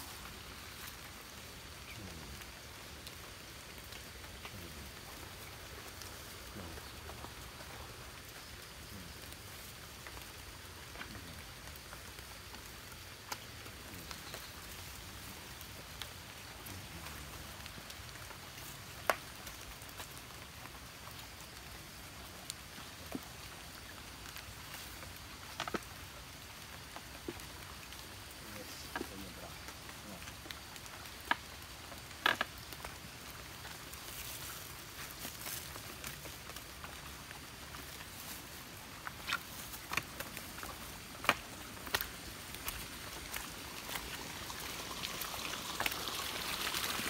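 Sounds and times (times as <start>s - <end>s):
light rain patter: 0.0s - 47.0s.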